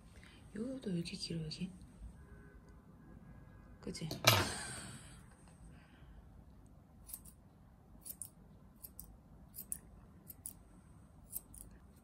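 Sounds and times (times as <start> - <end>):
scissors snipping fur: 7.0 - 7.4, 8.0 - 10.6, 11.2 - 12.0.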